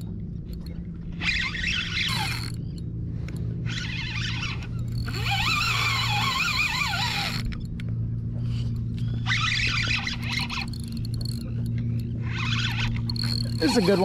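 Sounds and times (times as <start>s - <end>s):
boat engine humming: 0.0s - 14.0s
high wavering squeal: 1.1s - 2.8s, 3.6s - 7.6s, 9.1s - 14.0s.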